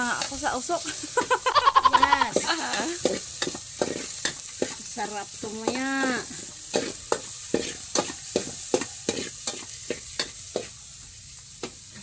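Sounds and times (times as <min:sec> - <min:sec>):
onion sizzling in hot oil: 0:00.0 - 0:12.0
spoon scraping metal pot: 0:06.7 - 0:10.7.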